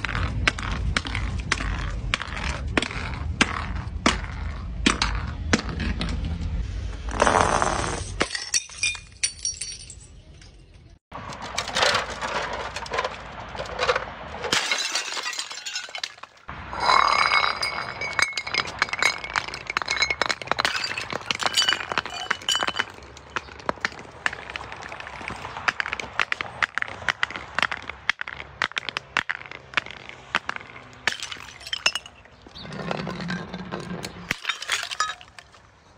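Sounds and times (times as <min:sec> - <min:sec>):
glass bottles smashing: 0:08.2 - 0:10.6, 0:11.3 - 0:25.0, 0:30.4 - 0:33.4, 0:34.0 - 0:35.6
shards and beads clinking: 0:08.2 - 0:25.0, 0:28.4 - 0:35.6.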